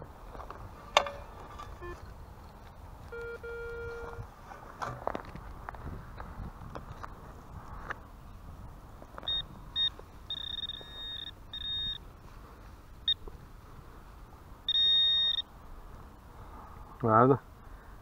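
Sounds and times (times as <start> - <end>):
metal detector beeping: 1.7 - 2.1, 3.1 - 4.2, 9.2 - 12.0, 14.7 - 15.5.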